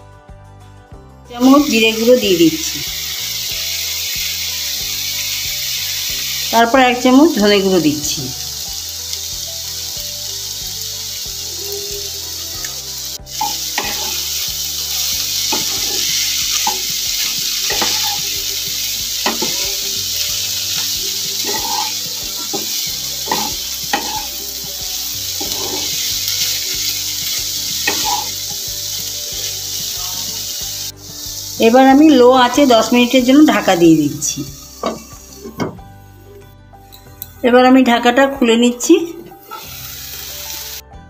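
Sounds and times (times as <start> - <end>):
vegetables sizzling in oil: 1.3 - 36.5, 38.8 - 40.9
spatula scraping pan: 20.8 - 24.4.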